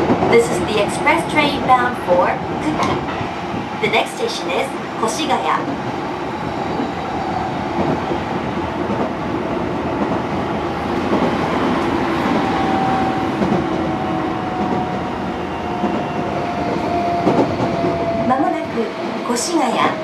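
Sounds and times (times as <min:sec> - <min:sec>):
train wheels rumbling on rails: 0:00.0 - 0:20.0.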